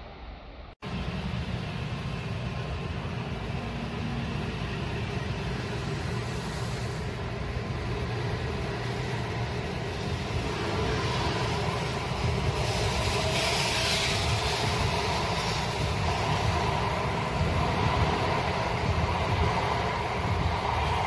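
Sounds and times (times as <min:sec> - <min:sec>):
train rolling noise: 0:00.0 - 0:21.0.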